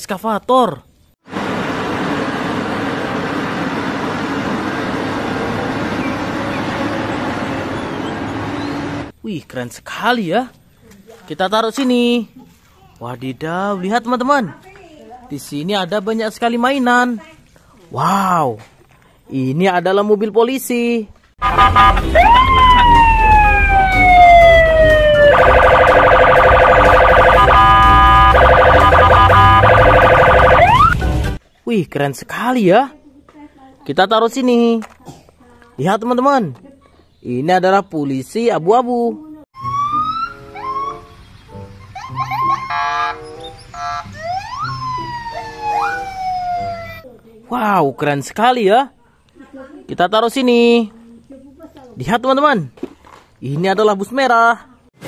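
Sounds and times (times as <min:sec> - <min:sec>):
excavator diesel engine drone: 0:01.3 - 0:09.1, 0:21.4 - 0:31.3
low rumble of traffic: 0:01.3 - 0:09.5
police siren wailing: 0:21.4 - 0:31.0, 0:39.6 - 0:41.1, 0:42.0 - 0:47.0.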